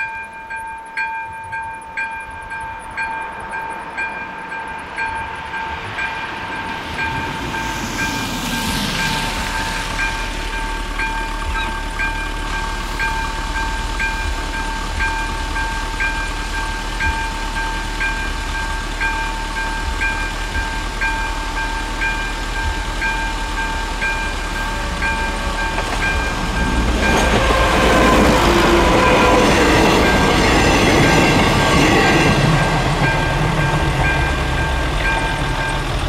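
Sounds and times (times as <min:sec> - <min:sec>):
train rumble: 0:00.0 - 0:36.0.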